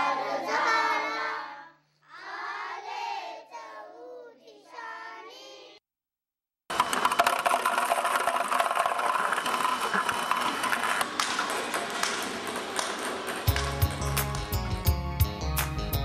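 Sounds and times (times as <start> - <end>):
machine mechanical whir: 6.7 - 13.3
ping-pong balls clicking and bouncing: 6.7 - 15.0.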